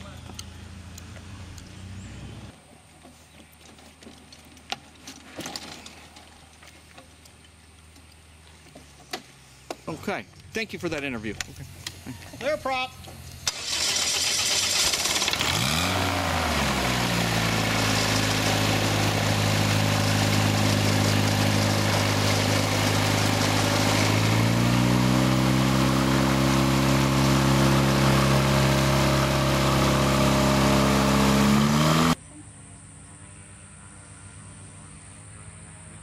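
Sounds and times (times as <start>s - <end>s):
aircraft engine revving and idling: 10.4s - 36.0s.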